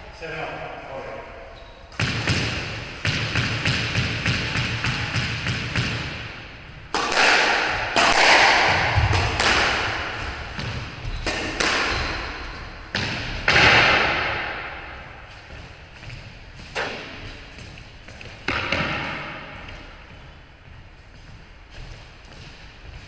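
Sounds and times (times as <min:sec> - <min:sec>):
squash ball hits ringing: 0:02.0 - 0:15.2, 0:18.4 - 0:19.6.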